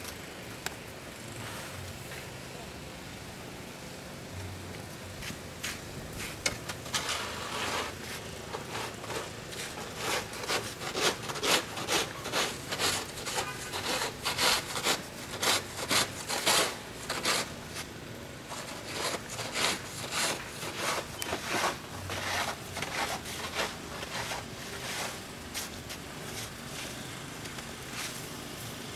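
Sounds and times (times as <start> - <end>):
snow shovel scraping brick: 5.7 - 17.9, 18.5 - 27.0.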